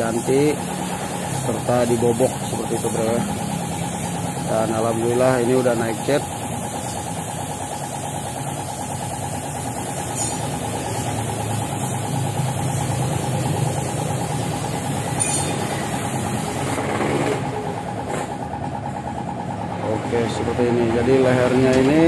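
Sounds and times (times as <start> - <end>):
paint spray gun hissing: 0.0 - 16.9
air compressor running: 0.0 - 22.0.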